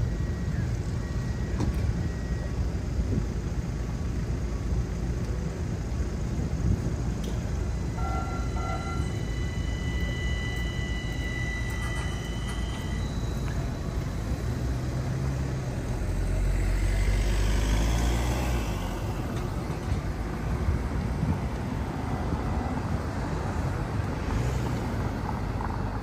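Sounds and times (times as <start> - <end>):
faint high whine: 0.0 - 25.5
street traffic rumbling: 0.0 - 26.0
short beeps: 7.8 - 15.6.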